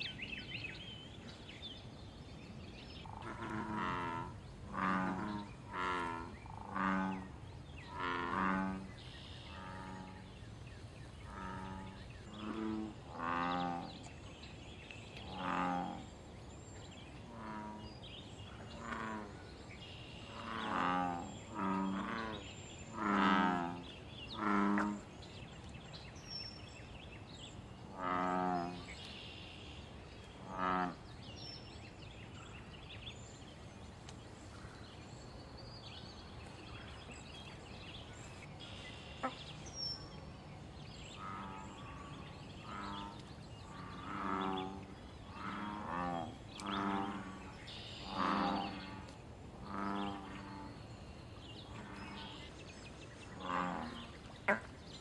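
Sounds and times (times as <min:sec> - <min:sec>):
bullfrogs calling: 0:03.0 - 0:10.3, 0:15.2 - 0:16.1, 0:20.2 - 0:25.1, 0:27.8 - 0:29.0, 0:41.2 - 0:52.6.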